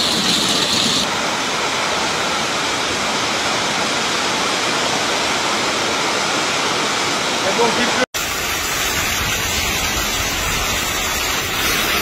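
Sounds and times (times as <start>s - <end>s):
hail and heavy rain: 0.0s - 1.1s, 7.5s - 12.0s.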